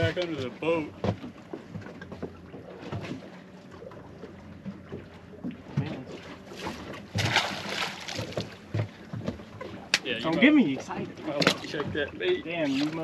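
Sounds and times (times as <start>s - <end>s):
waves slapping boat hull: 0.0s - 13.0s
rushing water splash: 6.2s - 8.6s.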